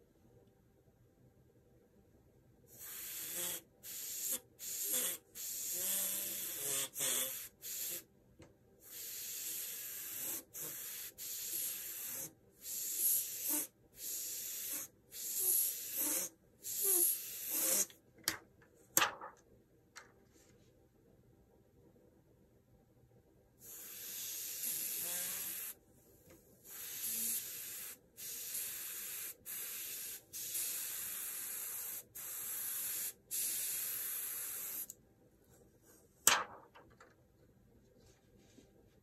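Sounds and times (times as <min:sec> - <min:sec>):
airbrush hissing bursts: 0:02.7 - 0:08.1, 0:08.8 - 0:17.9, 0:23.6 - 0:25.8, 0:26.6 - 0:34.9.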